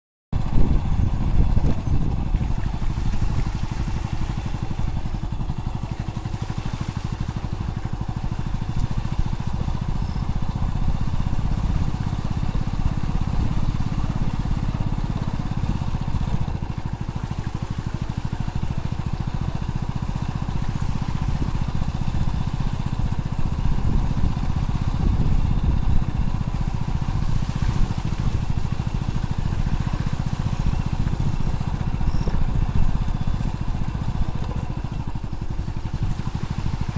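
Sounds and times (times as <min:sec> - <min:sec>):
motorcycle engine running: 0:00.4 - 0:36.9.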